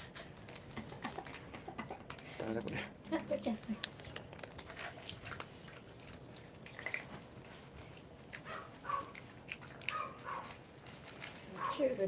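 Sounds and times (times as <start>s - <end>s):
cats chewing dry food: 0.0s - 12.0s.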